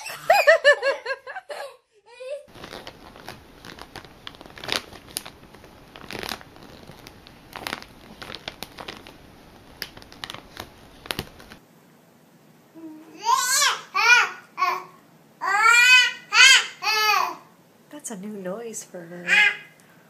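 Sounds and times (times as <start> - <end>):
plastic packaging crackling: 2.5 - 11.6.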